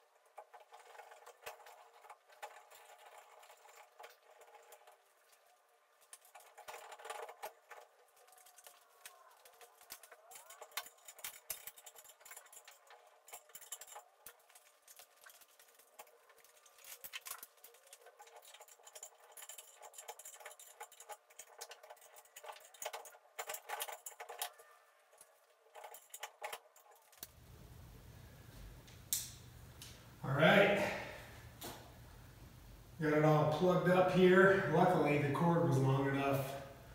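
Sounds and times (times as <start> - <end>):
metal clatters: 0.0 - 27.3
small metal hardware clinking: 6.0 - 27.3.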